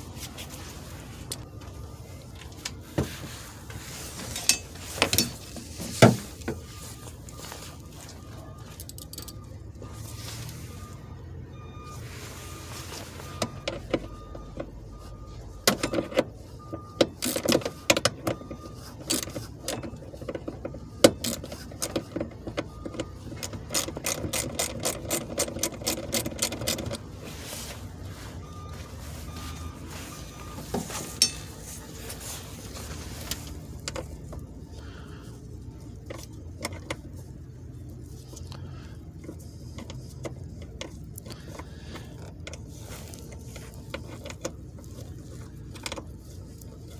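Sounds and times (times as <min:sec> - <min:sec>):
hand ratchet clicking: 0:23.4 - 0:27.0.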